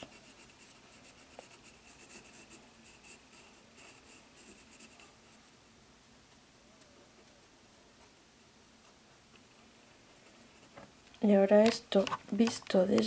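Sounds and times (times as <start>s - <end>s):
pencil scratching on paper: 0.0s - 5.5s.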